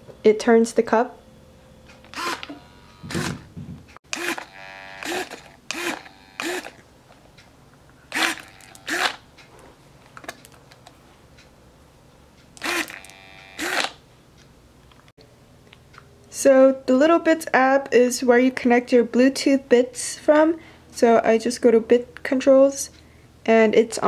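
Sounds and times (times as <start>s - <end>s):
servo whirring: 2.0s - 6.8s, 8.1s - 9.2s, 12.6s - 14.0s.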